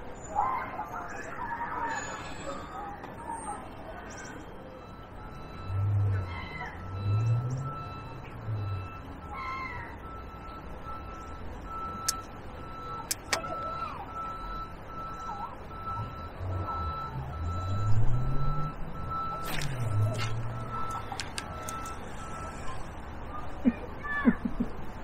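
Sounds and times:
heavy vehicle engine: 0.0 - 25.0
reversing alarm beeping: 3.5 - 23.1
sharp clicks: 12.0 - 12.3, 13.0 - 13.5, 20.8 - 22.0.

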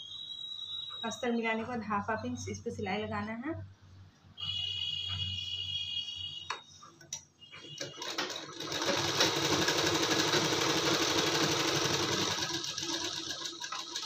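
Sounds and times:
sewing machine stitching fast: 7.8 - 14.0.

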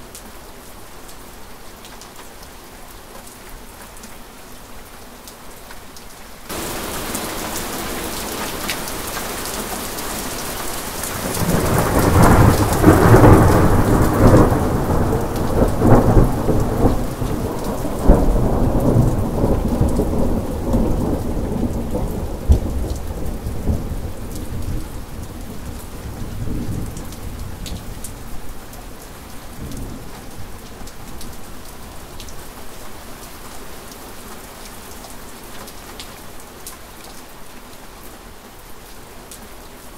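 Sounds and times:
heavy rain: 0.0 - 39.9
thunder rumbling and crashing: 6.5 - 8.6, 11.1 - 23.8.

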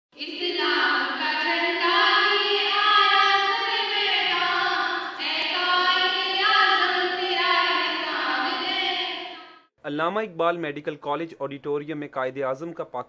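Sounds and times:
women singing together: 0.2 - 9.6.

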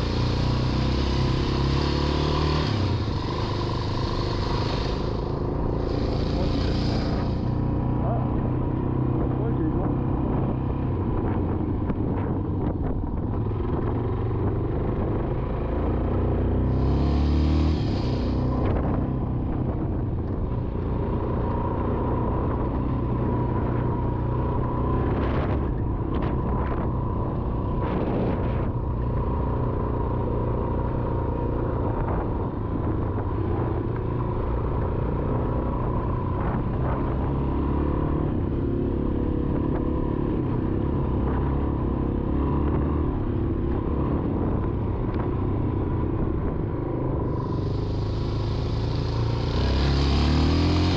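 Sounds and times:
dirt bike engine: 0.0 - 8.5, 15.9 - 19.0, 47.3 - 50.9
wind and ground rumble: 2.8 - 16.8, 17.7 - 50.9.

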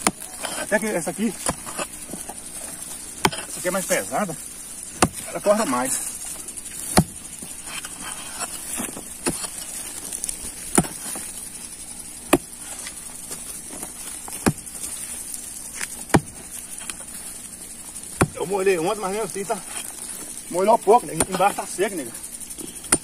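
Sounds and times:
hoe chopping into hard soil: 0.0 - 4.3, 4.9 - 5.8, 6.8 - 11.4, 12.3 - 14.9, 15.8 - 17.0, 18.2 - 18.5.

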